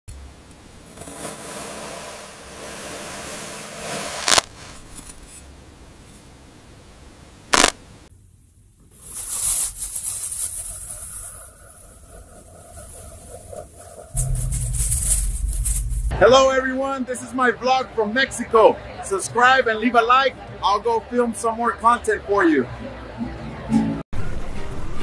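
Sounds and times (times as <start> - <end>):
scraping and crumbling sand: 0.8 - 5.5, 8.9 - 16.1
hissing crunch of sand sliced: 0.9 - 4.8, 7.5 - 7.8
sharp clicks: 7.5 - 7.8.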